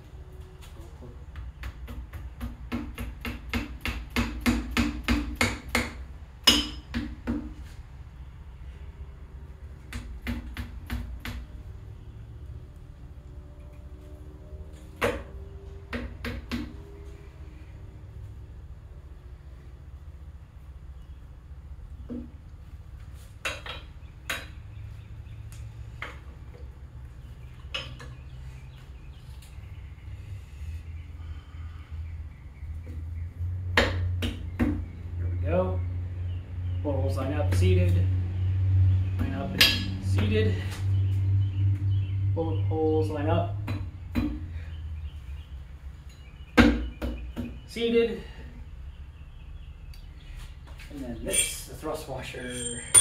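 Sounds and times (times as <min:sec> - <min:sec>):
sharp metallic clinks: 0:51.2 - 0:53.0
hard ringing mallet blow: 0:52.4 - 0:53.0.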